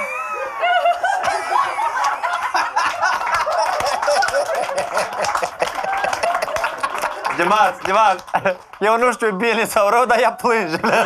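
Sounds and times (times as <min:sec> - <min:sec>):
woman laughing hard: 0:00.0 - 0:07.2
people laughing: 0:00.0 - 0:09.0, 0:10.5 - 0:11.0
hand claps: 0:01.2 - 0:09.3.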